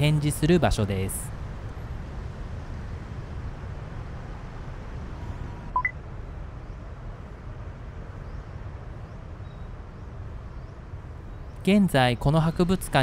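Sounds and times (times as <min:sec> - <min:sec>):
city background rumble: 0:00.0 - 0:13.0
short electronic beep: 0:05.8 - 0:06.0.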